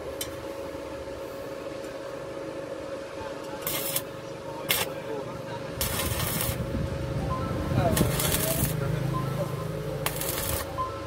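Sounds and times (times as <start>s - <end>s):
steady hum: 0.0s - 11.0s
arc welding crackle: 3.4s - 11.0s.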